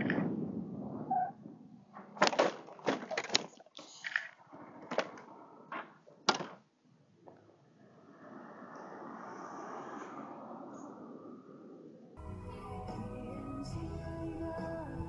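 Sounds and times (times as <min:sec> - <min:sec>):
road noise: 0:07.4 - 0:12.2.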